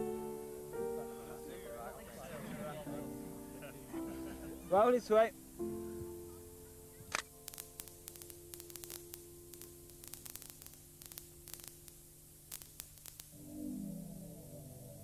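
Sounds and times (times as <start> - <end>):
faint electrical hum: 0.0 - 15.0
crackling static clicks: 4.7 - 15.0.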